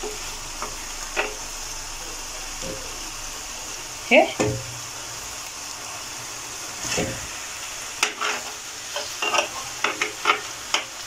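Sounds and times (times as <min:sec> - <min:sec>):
chicken sizzling in a frying pan: 0:00.0 - 0:11.0
utensil scraping a pan: 0:06.8 - 0:07.4, 0:08.0 - 0:10.9.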